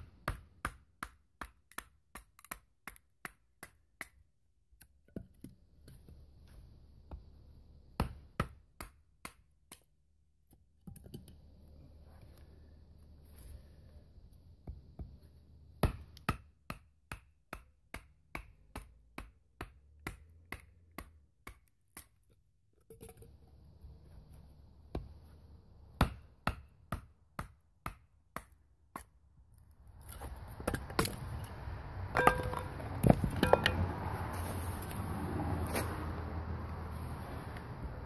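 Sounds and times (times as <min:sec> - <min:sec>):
wooden baton knocking on blade: 0:32.2 - 0:32.8.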